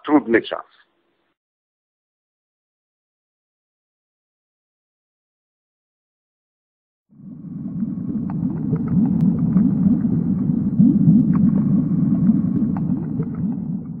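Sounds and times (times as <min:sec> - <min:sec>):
low rumbling: 0:07.1 - 0:14.0
faint clicks: 0:08.2 - 0:09.7, 0:12.2 - 0:13.6.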